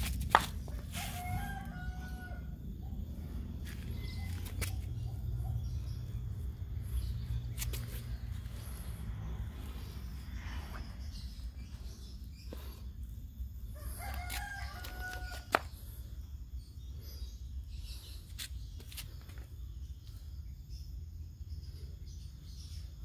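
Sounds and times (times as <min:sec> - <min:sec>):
low background rumble: 0:00.0 - 0:23.0
rooster crowing: 0:00.9 - 0:02.8, 0:13.7 - 0:15.5.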